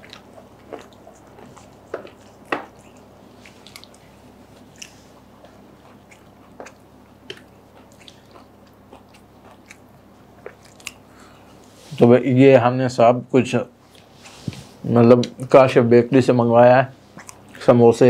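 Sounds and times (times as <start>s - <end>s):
chewing crunches: 0.0s - 11.6s, 17.1s - 17.7s
wet mouth clicks: 17.2s - 17.6s.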